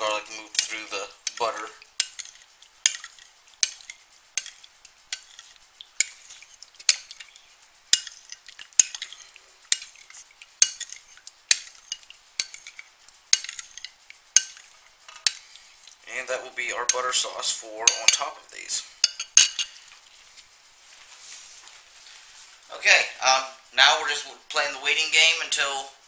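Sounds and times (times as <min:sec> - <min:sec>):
metal spoon clinking on bowl: 0:00.0 - 0:15.4, 0:17.9 - 0:18.3, 0:19.0 - 0:19.8
spoon scraping bowl: 0:00.0 - 0:19.9.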